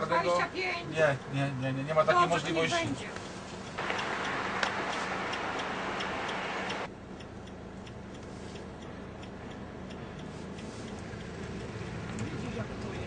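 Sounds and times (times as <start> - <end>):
background hiss: 1.2 - 6.9
hazard flasher relay ticking: 3.5 - 13.0.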